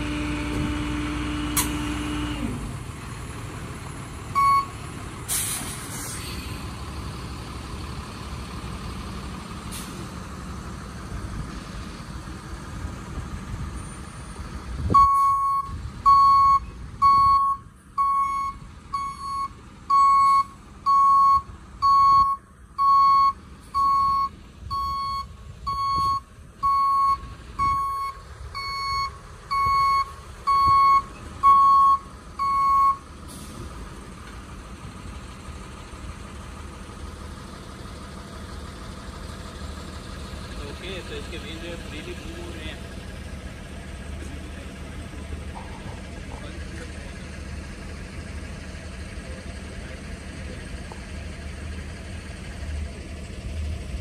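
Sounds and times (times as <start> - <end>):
truck engine running: 0.0 - 54.0
backup alarm beeping: 4.4 - 4.7.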